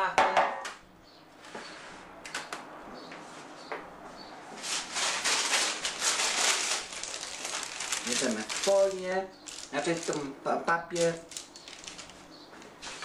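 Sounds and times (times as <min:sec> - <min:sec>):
metal baking tray knocks: 0:00.2 - 0:00.7
baking paper rustling: 0:04.6 - 0:13.0.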